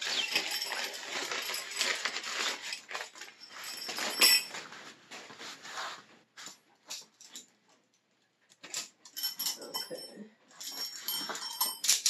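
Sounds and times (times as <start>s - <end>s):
nylon rustling and crinkling: 0.0s - 6.7s.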